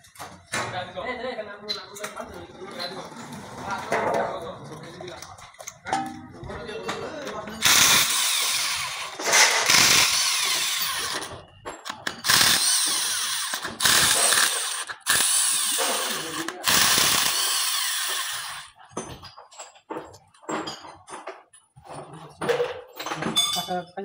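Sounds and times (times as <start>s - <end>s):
electric power tool bursts: 7.6s - 11.3s, 12.0s - 18.7s.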